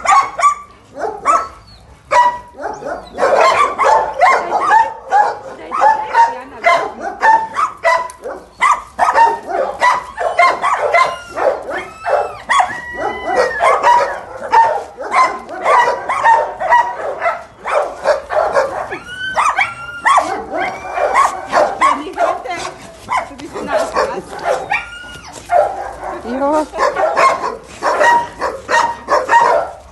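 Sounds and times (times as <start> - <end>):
dogs barking: 0.0 - 29.9
dog yips and whines: 7.3 - 16.9, 17.6 - 22.0, 24.4 - 25.8.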